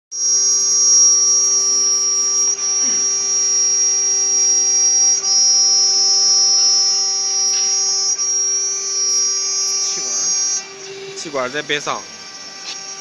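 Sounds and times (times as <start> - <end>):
router spindle whining: 0.1 - 13.0.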